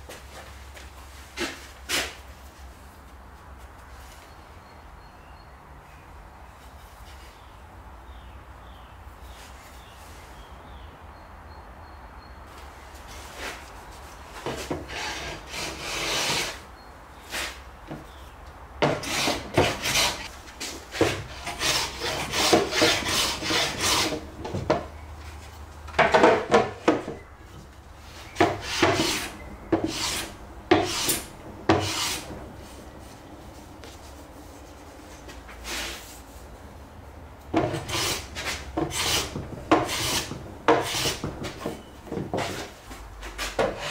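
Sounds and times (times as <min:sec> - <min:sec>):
hand plane shaving wood: 0:14.8 - 0:16.6, 0:18.8 - 0:20.3, 0:20.9 - 0:24.3, 0:28.4 - 0:32.3, 0:37.6 - 0:41.8.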